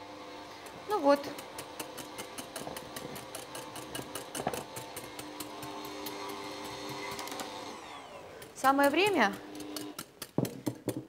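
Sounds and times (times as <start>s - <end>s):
stand mixer humming and clicking: 1.4s - 8.6s.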